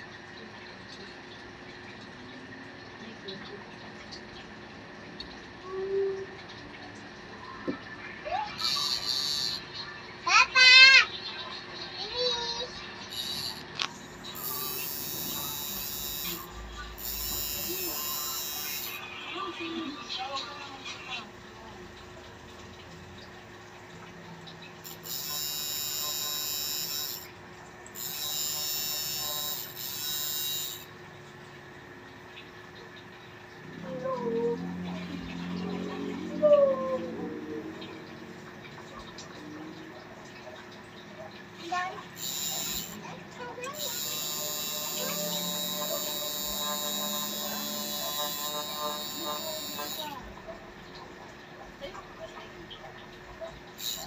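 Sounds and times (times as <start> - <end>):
tattoo machine buzzing: 8.6 - 9.8, 13.1 - 19.1, 24.8 - 30.9, 41.8 - 50.2, 53.8 - 54.0.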